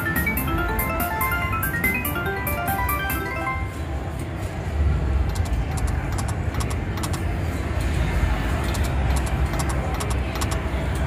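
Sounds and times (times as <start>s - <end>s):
slot machine clicking: 0.0s - 3.8s, 5.3s - 7.3s, 8.7s - 10.7s.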